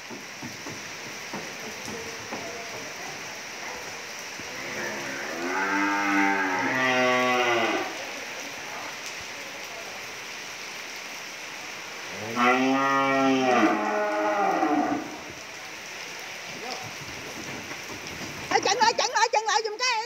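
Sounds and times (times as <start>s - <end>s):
rain hiss: 0.0s - 20.0s
cattle mooing: 4.6s - 8.0s, 12.2s - 15.3s.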